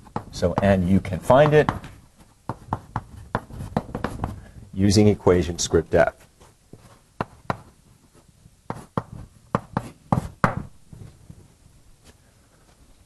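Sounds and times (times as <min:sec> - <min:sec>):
chalk tapping on board: 0:00.0 - 0:04.4, 0:08.7 - 0:10.6.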